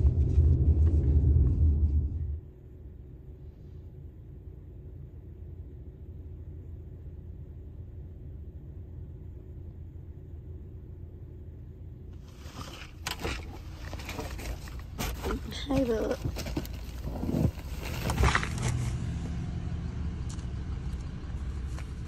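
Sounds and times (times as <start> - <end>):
car cabin rumble: 0.0 - 3.3, 4.3 - 22.0
clicks and rustling of handling: 12.2 - 18.9.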